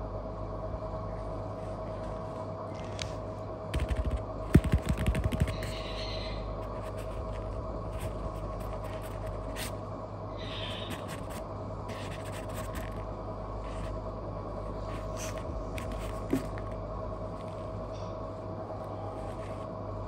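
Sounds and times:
steady machine hum: 0:00.0 - 0:20.0
kitten claws scratching foam mat: 0:03.8 - 0:06.0, 0:06.6 - 0:09.8, 0:10.8 - 0:14.0, 0:14.7 - 0:16.8.

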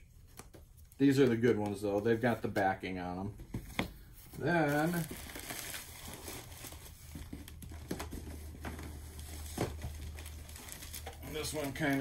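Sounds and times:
packaging crinkling and rustling: 0:04.4 - 0:12.0.

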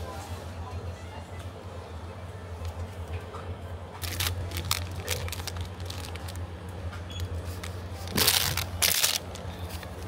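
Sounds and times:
groceries clicking in plastic basket: 0:04.0 - 0:06.4, 0:07.6 - 0:10.0
plastic packaging rustling: 0:04.0 - 0:06.5, 0:07.4 - 0:10.0.

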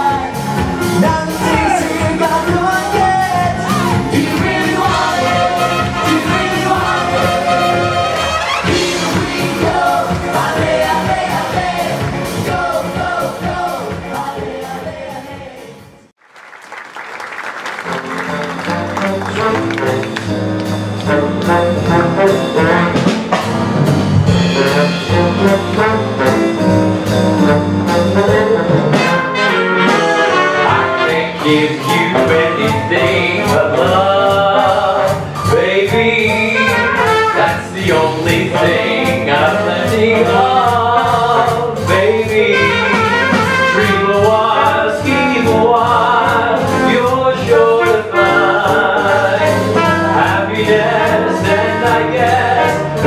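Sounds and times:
steady drum beat: 0:00.0 - 0:15.8, 0:18.7 - 0:53.0
big band jazz: 0:00.0 - 0:16.1, 0:17.4 - 0:53.0.

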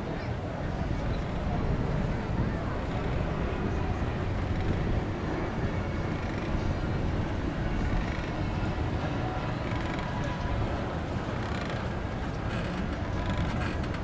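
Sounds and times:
faint crowd murmur: 0:00.0 - 0:14.0
wind rumble on microphone: 0:00.0 - 0:14.0.

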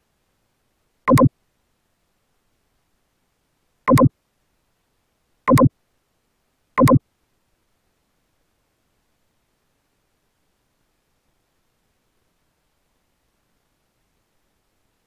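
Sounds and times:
synthetic mouse double click: 0:01.1 - 0:01.3, 0:03.9 - 0:04.1, 0:05.5 - 0:05.7, 0:06.8 - 0:07.0.

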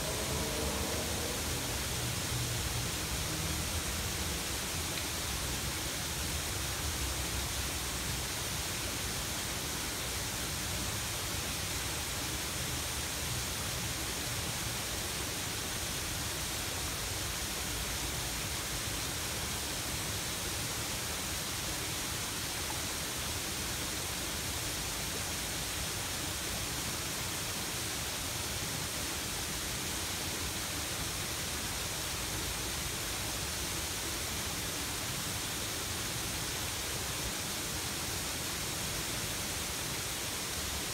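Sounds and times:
waterfall rushing: 0:00.0 - 0:13.2.

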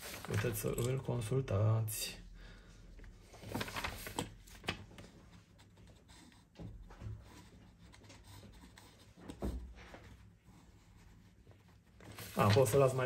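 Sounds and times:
pencil scratching on paper: 0:05.5 - 0:12.9.

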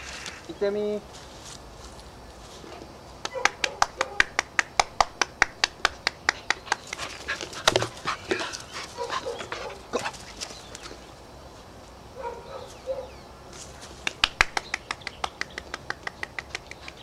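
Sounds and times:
hand clapping: 0:03.2 - 0:07.8, 0:14.0 - 0:17.0
dog panting: 0:06.3 - 0:10.6.

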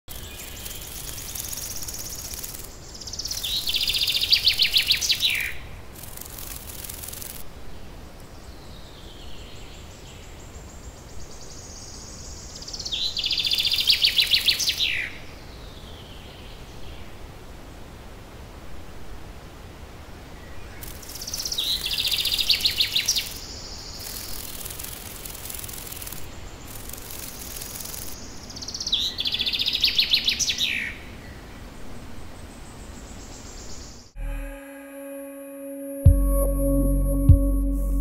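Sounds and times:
short bursts of high hiss: 0:00.1 - 0:07.4, 0:20.8 - 0:28.2
faint steady hiss: 0:00.1 - 0:36.0.

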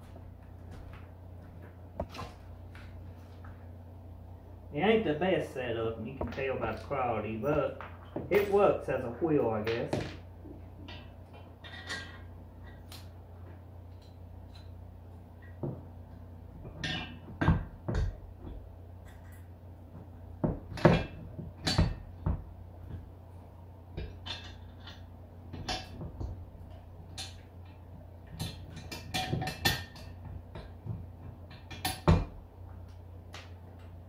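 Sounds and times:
metal clinks and knocks: 0:10.8 - 0:12.9, 0:16.6 - 0:22.2, 0:24.0 - 0:32.4.

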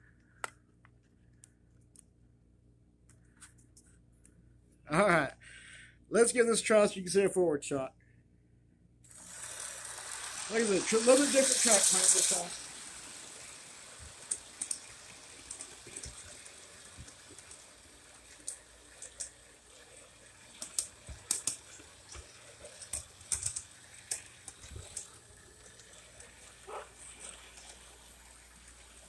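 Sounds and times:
faint steady hiss: 0:09.0 - 0:29.0
model train wheels clicking: 0:09.1 - 0:29.0.

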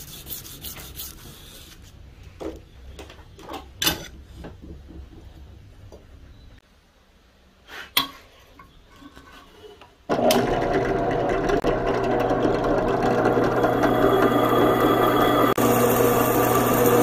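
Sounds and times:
drill press running: 0:10.1 - 0:17.0.

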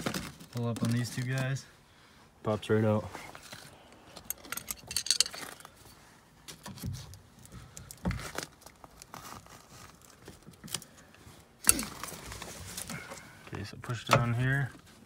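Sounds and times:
plastic crinkling: 0:00.0 - 0:01.6, 0:07.8 - 0:10.9.

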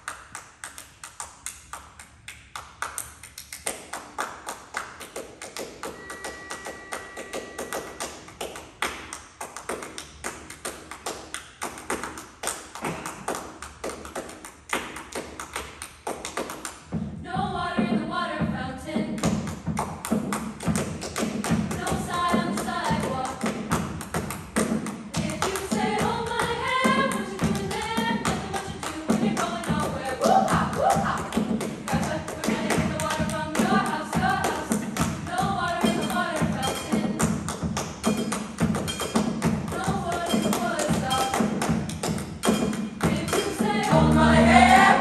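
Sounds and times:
choir singing: 0:25.2 - 0:31.2, 0:32.0 - 0:36.6, 0:43.1 - 0:45.0.

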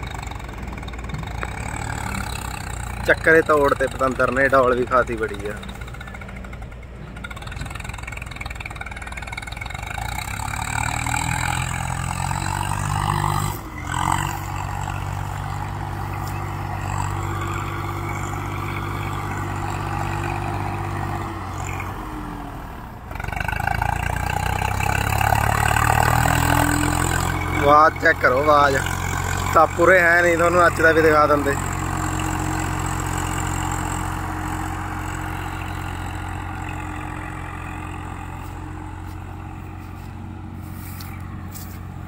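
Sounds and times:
tractor diesel engine under load: 0:00.0 - 0:42.0.

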